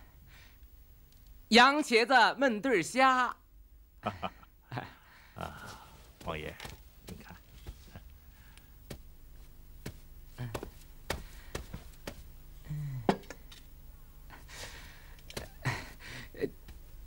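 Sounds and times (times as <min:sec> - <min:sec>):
person grunting: 0:12.6 - 0:13.2.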